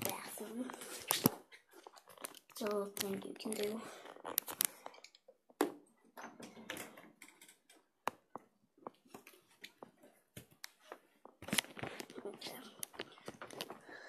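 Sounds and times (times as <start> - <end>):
phone handling clicks and rustles: 2.1 - 5.2, 10.4 - 13.8.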